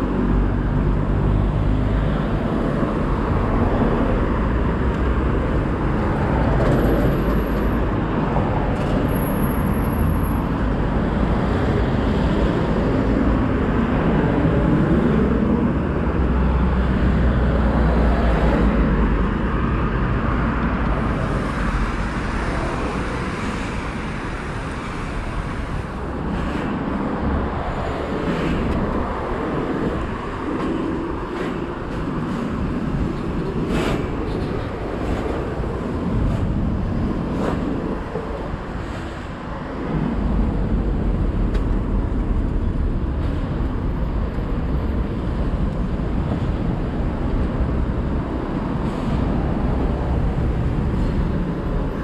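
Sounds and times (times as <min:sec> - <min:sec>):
road traffic passing: 0:00.0 - 0:52.0.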